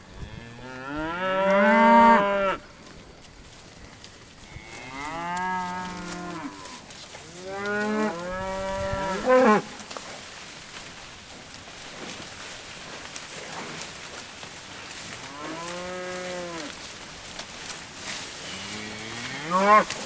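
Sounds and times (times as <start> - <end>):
cattle mooing: 15.2 - 16.8, 18.5 - 20.0.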